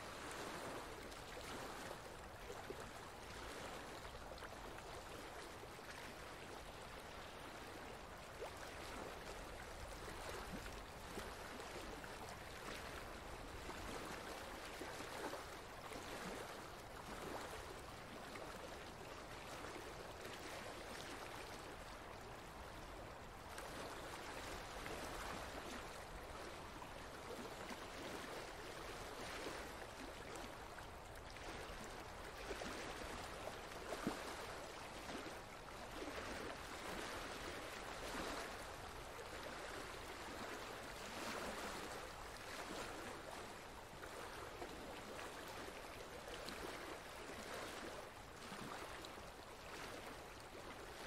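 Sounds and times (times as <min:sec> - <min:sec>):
flowing water rushing: 0:00.0 - 0:51.0.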